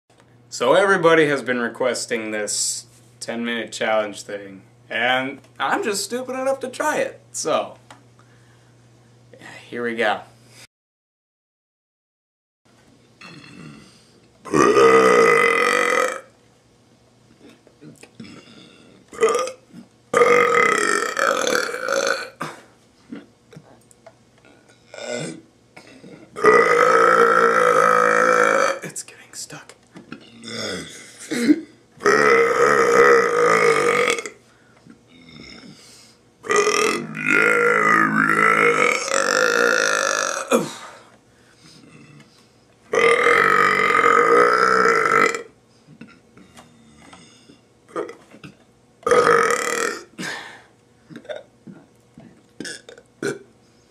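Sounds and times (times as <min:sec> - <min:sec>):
man burping: 0:13.2 - 0:16.3, 0:17.4 - 0:23.3, 0:24.5 - 0:28.9, 0:30.1 - 0:34.4, 0:35.1 - 0:35.8, 0:36.4 - 0:41.0, 0:42.9 - 0:51.9, 0:52.6 - 0:53.5.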